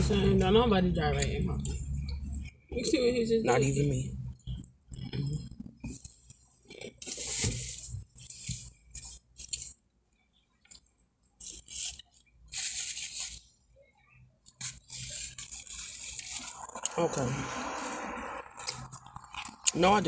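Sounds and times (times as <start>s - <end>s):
crunching and chewing food: 4.2s - 13.5s, 14.4s - 17.0s, 17.8s - 20.0s.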